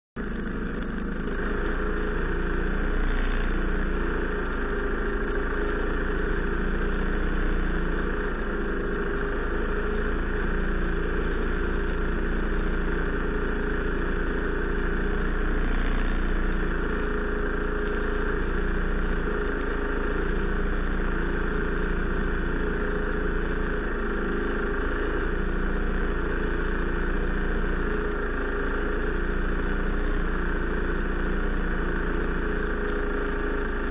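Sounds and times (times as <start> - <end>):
snowmobile engine idling: 0.2 - 33.9.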